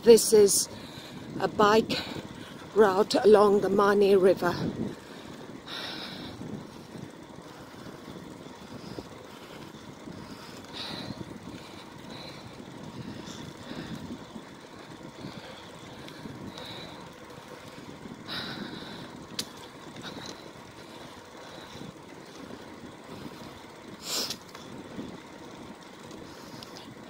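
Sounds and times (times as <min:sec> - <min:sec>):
bicycle tyres rolling on pavement: 0:00.0 - 0:27.0
wind on microphone: 0:04.4 - 0:05.1.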